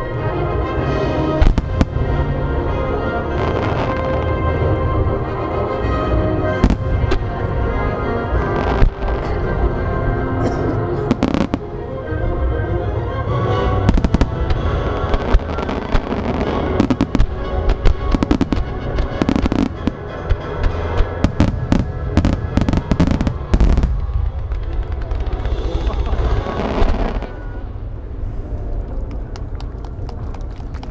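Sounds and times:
music: 0:00.0 - 0:28.5
firework crackling: 0:13.9 - 0:20.0, 0:21.0 - 0:28.0.

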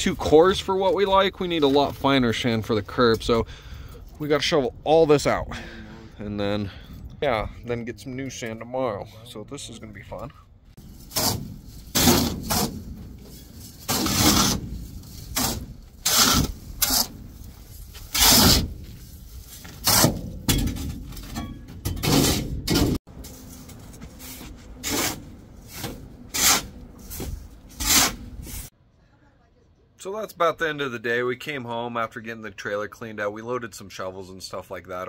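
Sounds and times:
shovels scraping sand on steel: 0:10.8 - 0:20.2, 0:23.2 - 0:28.7.

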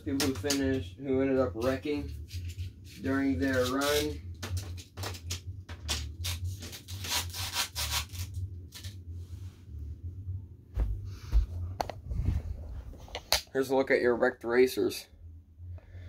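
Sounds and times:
low steady hum: 0:00.0 - 0:16.0
low thumps: 0:10.5 - 0:13.3.

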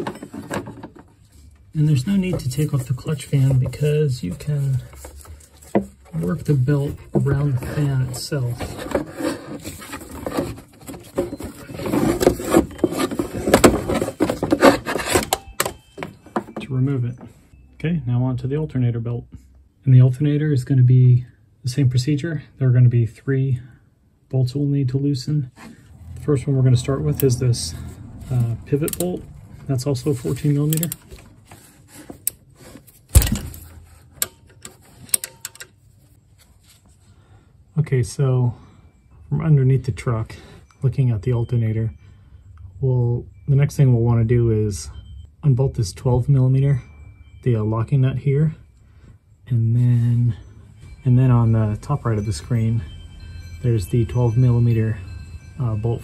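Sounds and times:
rubber belt rubbing and scraping: 0:01.2 - 0:15.3.

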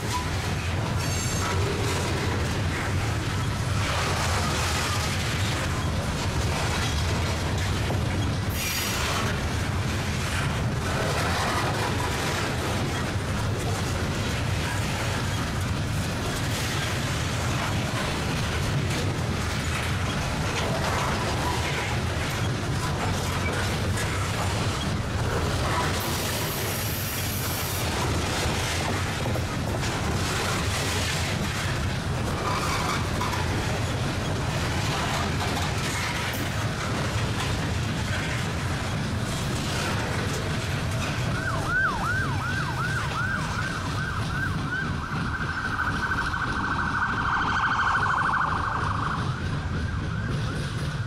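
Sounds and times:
freight train wheels rumbling: 0:00.0 - 0:51.0
emergency vehicle siren: 0:41.0 - 0:51.0.

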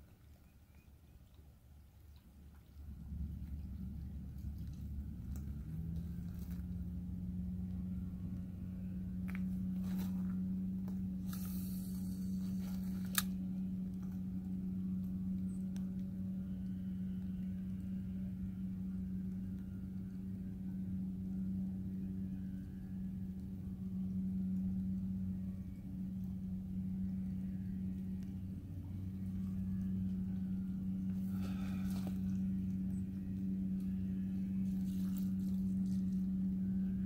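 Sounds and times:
distant motor humming: 0:02.3 - 0:37.0
short hiss: 0:11.2 - 0:12.4.

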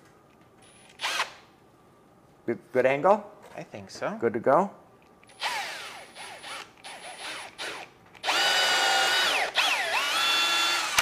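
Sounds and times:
cordless drill boring into wood: 0:01.0 - 0:01.4, 0:05.3 - 0:11.0.

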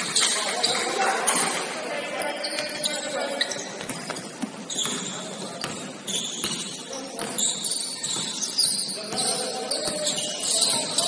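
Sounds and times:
basketball bouncing on court: 0:02.4 - 0:11.0.

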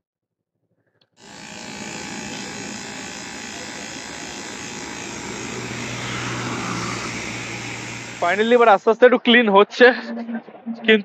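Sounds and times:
buzzing hiss at tyre valve: 0:01.2 - 0:08.7.

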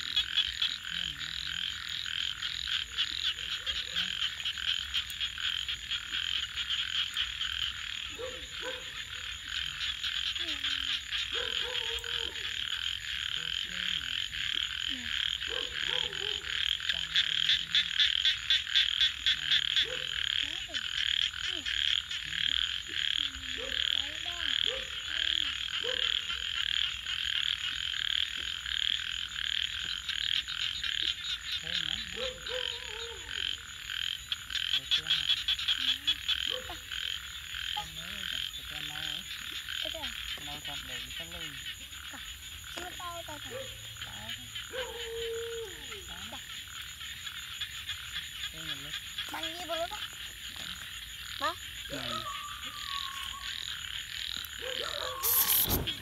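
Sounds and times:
frog croaks: 0:00.0 - 0:56.0
frogs trilling in chorus: 0:00.0 - 0:56.0.

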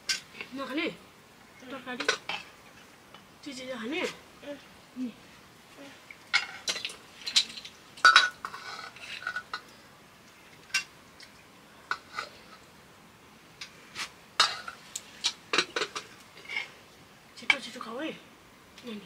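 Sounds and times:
metal dishes clinking: 0:06.3 - 0:09.7, 0:14.4 - 0:14.8, 0:15.5 - 0:16.7.

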